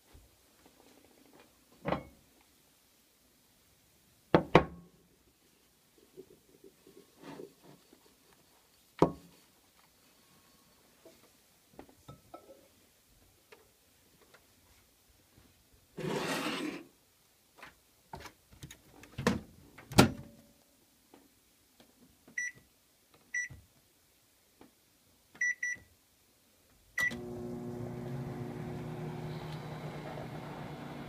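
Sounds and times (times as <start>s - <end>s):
keypad beeps: 25.4s - 25.8s
microwave oven humming: 27.1s - 31.0s.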